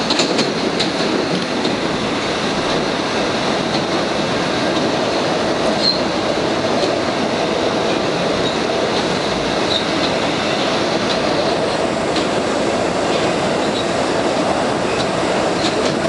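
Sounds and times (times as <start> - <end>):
wheels rumbling on rail: 0.0 - 16.0
brief high squeaks: 5.8 - 6.0.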